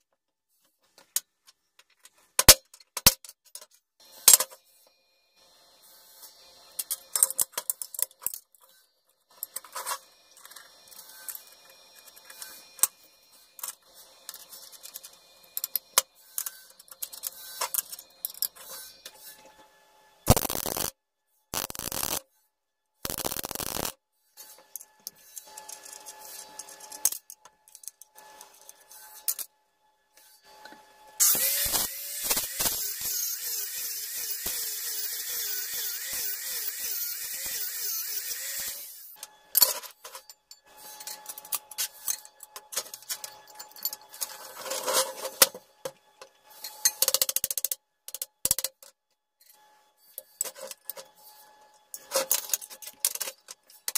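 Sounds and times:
grinder grinding steel: 20.3 - 20.9, 21.6 - 22.2, 23.1 - 23.9, 31.2 - 39.2
welding crackle: 20.3 - 20.9, 21.5 - 22.2, 23.0 - 24.0, 31.2 - 33.3.

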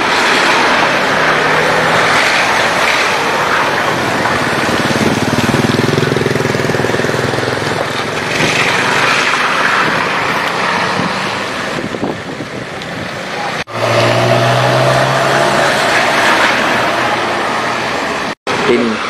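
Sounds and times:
car tyres swishing through mud: 0.0 - 18.2
motor scooter engine passing: 0.9 - 11.4.

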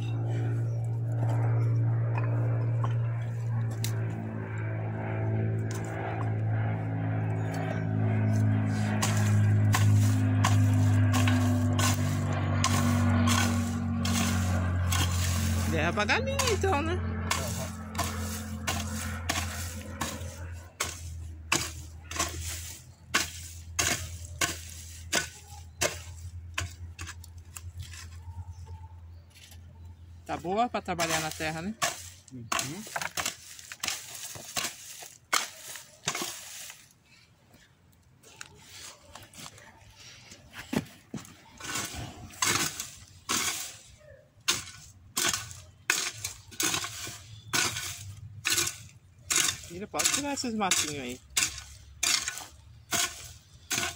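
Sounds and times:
steady low hum: 0.0 - 37.9
weeding scrapes in soil: 7.4 - 28.6, 30.3 - 53.9.

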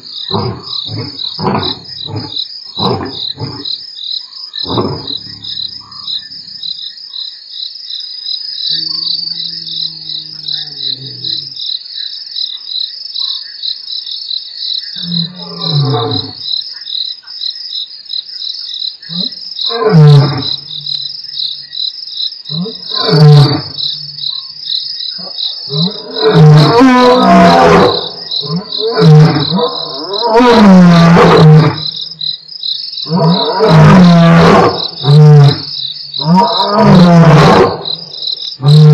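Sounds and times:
crickets chirping: 0.0 - 38.9
lions roaring: 25.2 - 31.8, 33.1 - 37.9.

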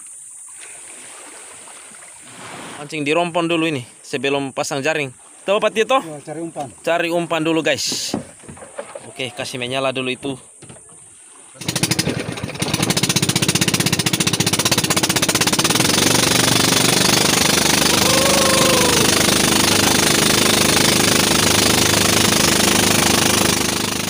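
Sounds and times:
small boat engine running: 11.3 - 24.0.

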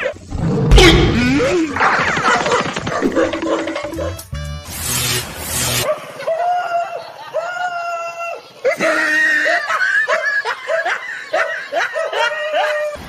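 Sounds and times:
high-pitched shrieking cries: 6.3 - 13.0.

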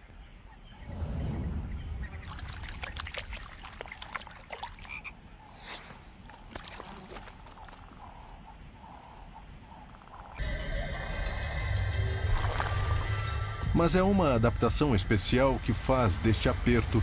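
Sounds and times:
frogs clicking calls: 2.1 - 13.5.

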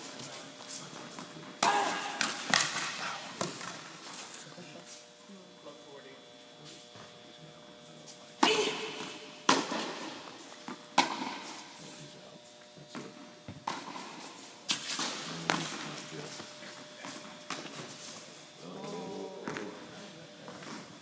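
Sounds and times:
tennis ball struck by rackets: 8.4 - 10.2, 11.0 - 11.6.

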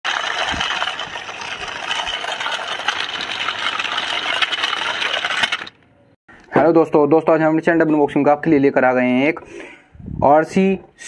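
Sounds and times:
plastic wheels rattling on grit: 0.0 - 5.8.

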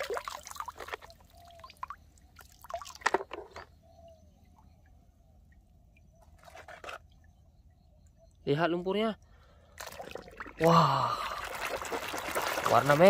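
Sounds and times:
water splashing and dripping: 0.0 - 3.6, 9.7 - 13.0.

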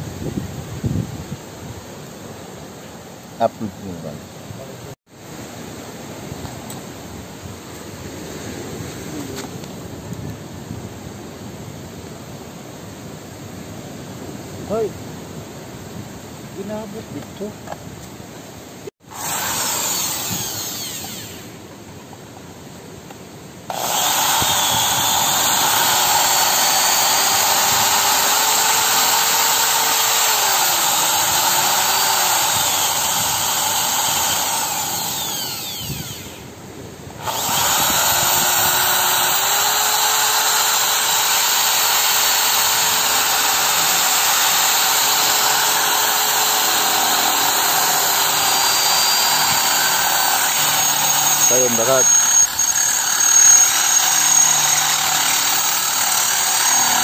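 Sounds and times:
electric drill boring through metal: 19.1 - 21.6, 23.7 - 36.5, 37.2 - 57.0.

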